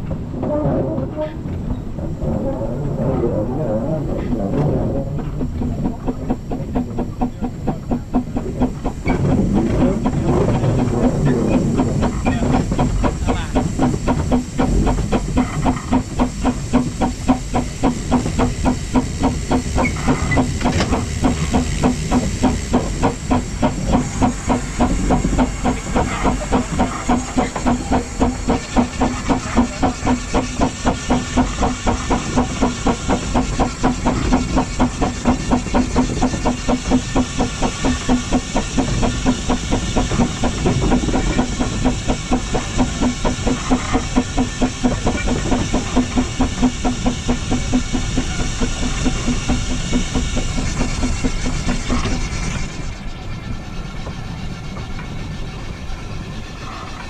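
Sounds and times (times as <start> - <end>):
continuous steam hiss: 0.0 - 57.0
steam locomotive exhaust chuffs: 0.0 - 57.0.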